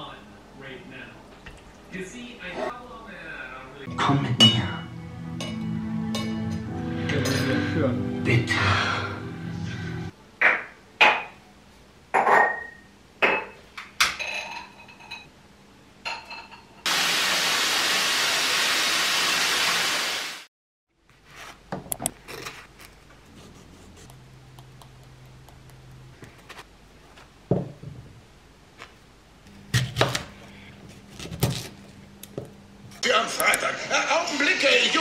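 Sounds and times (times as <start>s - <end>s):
glass clinking on tile: 12.2s - 15.3s.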